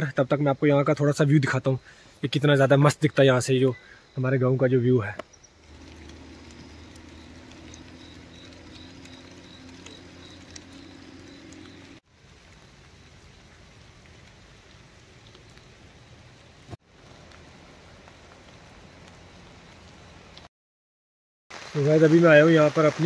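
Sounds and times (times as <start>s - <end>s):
faint insect chirping: 0.0s - 12.0s, 14.3s - 16.6s
steady rain falling: 5.0s - 20.5s, 21.5s - 23.0s
low hum: 5.6s - 12.0s.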